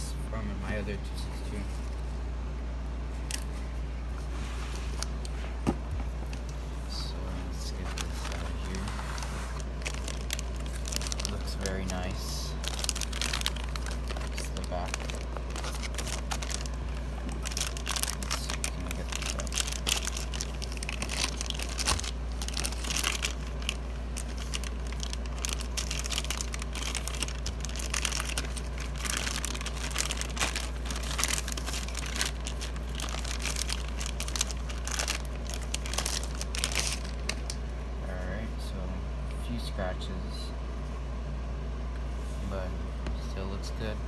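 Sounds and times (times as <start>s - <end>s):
low steady hum: 0.0s - 44.0s
plastic bag crinkling: 7.5s - 37.6s.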